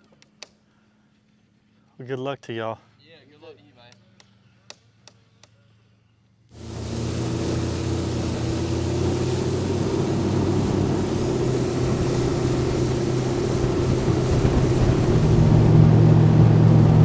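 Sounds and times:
outboard motor droning: 6.5s - 17.0s
wind and water rushing: 6.6s - 17.0s.

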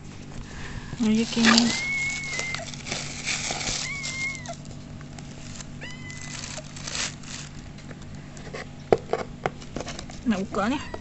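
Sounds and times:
plastic bag rustling: 0.0s - 8.0s
kitten mewing: 1.4s - 4.7s, 5.8s - 6.8s.

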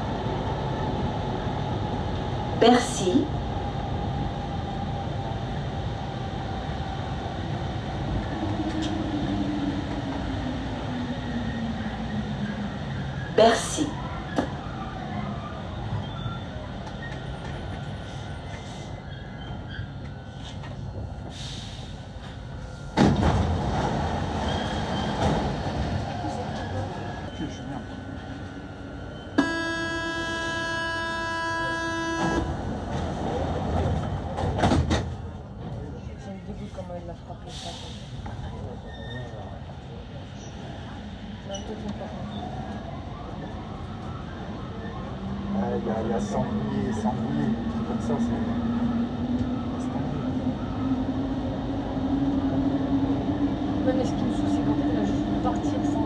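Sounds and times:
train running gear rumble: 0.0s - 29.4s, 32.1s - 42.8s
harsh door warning buzzer: 29.4s - 32.5s.

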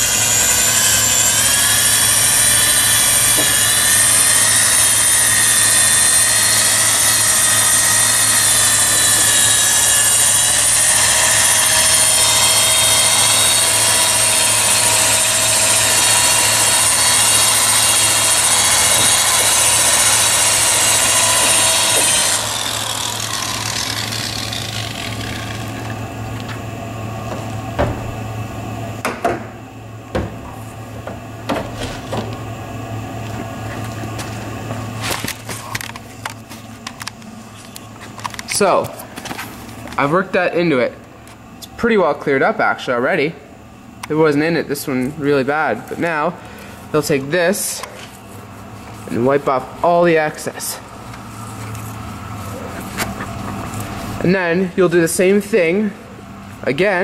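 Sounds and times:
electric drill running: 0.0s - 27.7s.

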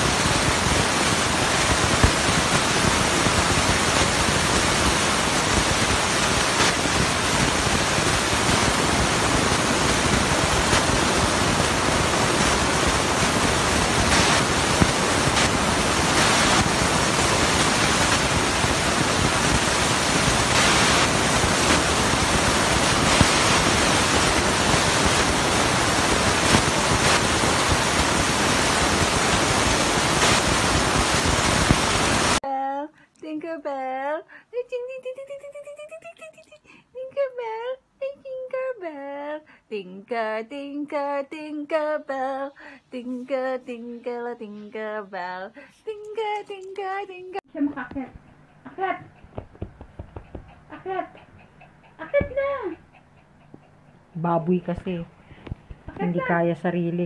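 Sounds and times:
loud rushing hiss: 0.0s - 32.4s.

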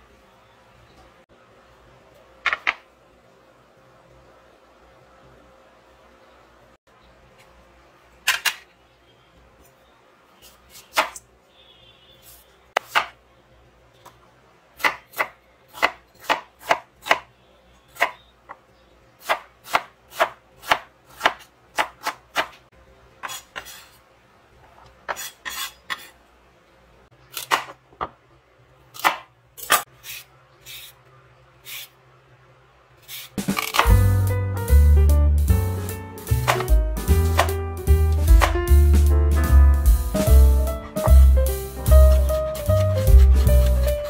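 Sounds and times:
knife chopping on cutting board: 12.8s - 13.2s, 14.8s - 17.3s, 19.2s - 22.6s, 36.4s - 37.6s, 38.2s - 38.8s, 40.2s - 44.0s.

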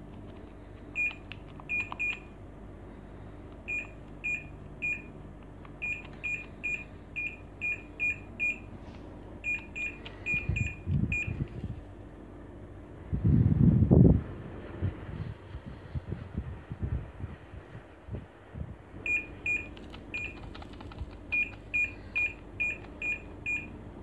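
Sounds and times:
steady low hum: 0.0s - 24.0s
air conditioner short high beeps: 0.9s - 2.4s, 3.6s - 5.2s, 5.8s - 11.6s, 19.0s - 20.6s, 21.2s - 24.0s.

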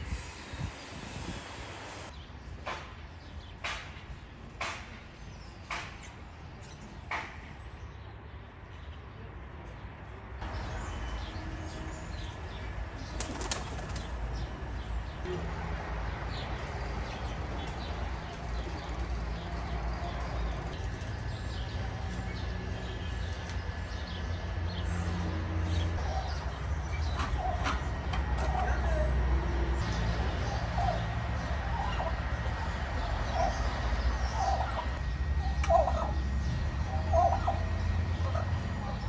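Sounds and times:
wind rumble on microphone: 0.0s - 2.1s
doves' wings flapping: 13.0s - 14.6s.

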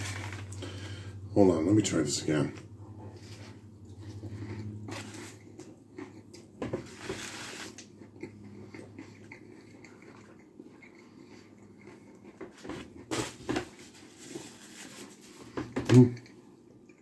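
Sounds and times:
low steady hum: 0.0s - 17.0s
crunchy chewing: 3.1s - 13.2s.

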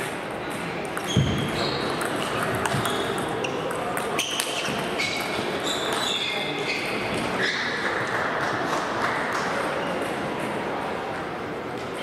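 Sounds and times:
ping pong ball clicking on bats: 0.0s - 6.1s
chatter of busy hall: 0.0s - 12.0s
ball bouncing on table: 0.5s - 6.0s
short high squeaks: 1.1s - 2.0s, 4.2s - 7.7s.

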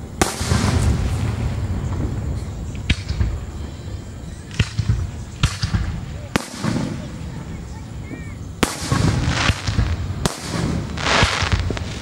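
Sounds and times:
firework shells bursting: 8.6s - 12.0s.

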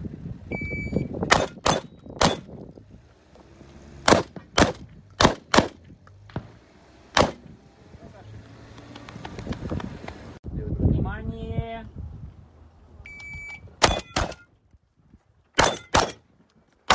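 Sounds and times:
shot timer beep: 0.5s - 1.1s, 13.1s - 14.2s
shotgun shots: 1.2s - 2.5s, 4.0s - 5.8s, 6.4s - 7.5s, 13.8s - 14.5s, 15.6s - 16.3s.

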